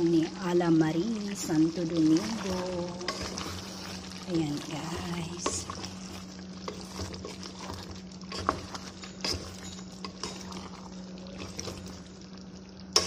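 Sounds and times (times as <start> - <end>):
steady low hum: 0.0 - 13.0
wooden spoon stirring thick stew: 2.2 - 12.2.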